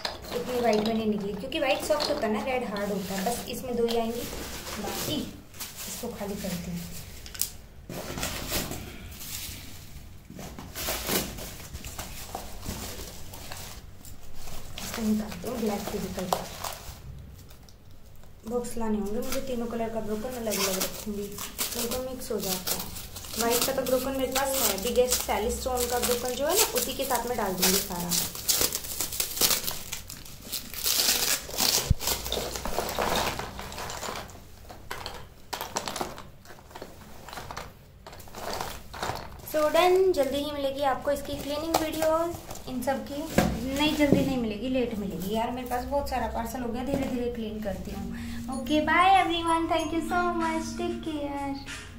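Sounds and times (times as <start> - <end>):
chalk sticks clicking together: 0.0 - 2.9
plastic wrapping crinkling: 0.0 - 48.5
cardboard box rustling and crinkling: 20.3 - 34.4.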